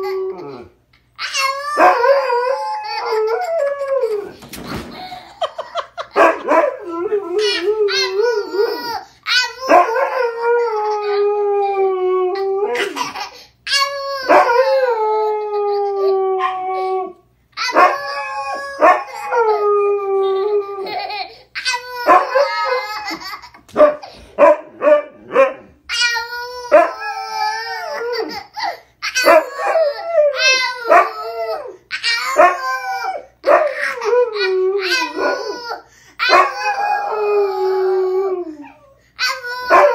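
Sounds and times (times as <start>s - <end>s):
husky howling and yipping: 0.0s - 4.4s, 14.2s - 21.0s, 21.9s - 28.5s, 29.1s - 38.9s, 39.5s - 39.9s
toddler yelling and babbling: 1.2s - 3.2s, 7.1s - 9.9s, 12.7s - 14.5s, 25.9s - 39.9s.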